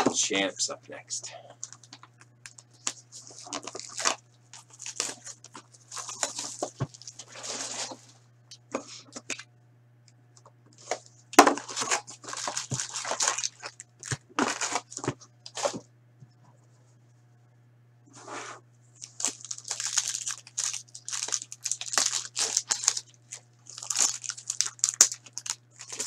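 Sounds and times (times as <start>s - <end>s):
steady low hum: 0.0s - 26.0s
wrappers tearing and crinkling: 1.6s - 8.0s, 10.8s - 15.8s, 19.0s - 26.0s.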